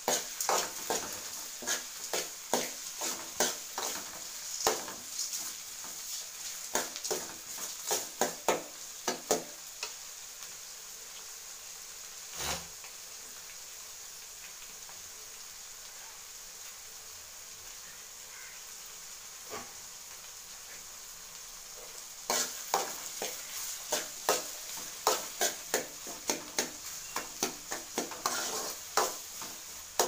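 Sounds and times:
food sizzling in oil: 0:00.0 - 0:30.0
ladle scraping metal pan: 0:12.3 - 0:12.7, 0:27.4 - 0:29.2.

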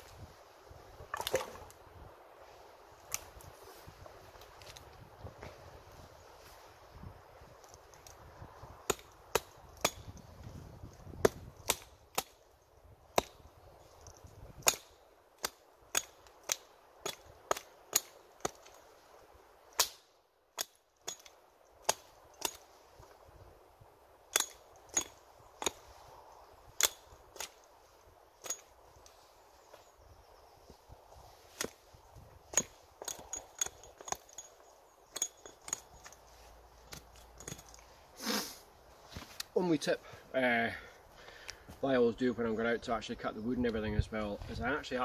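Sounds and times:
hatchet chopping wood: 0:08.8 - 0:12.4, 0:13.1 - 0:13.5, 0:14.4 - 0:18.9, 0:19.7 - 0:22.8, 0:24.3 - 0:25.9, 0:26.7 - 0:27.6, 0:31.5 - 0:31.8, 0:32.5 - 0:34.5.

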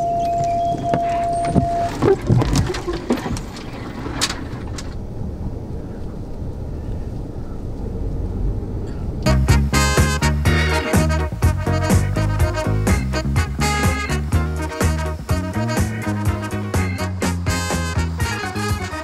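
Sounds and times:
clicks and knocks: 0:00.2 - 0:05.0
music: 0:09.3 - 0:19.0.

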